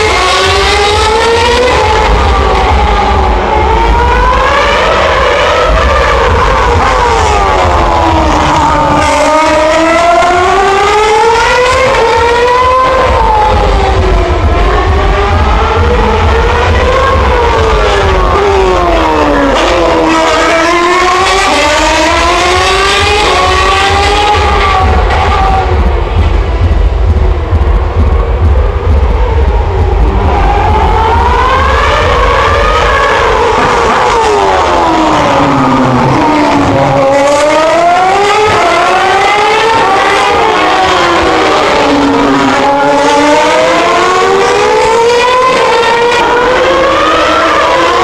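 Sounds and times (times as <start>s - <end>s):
racing car engine at high revs: 0.0s - 48.0s.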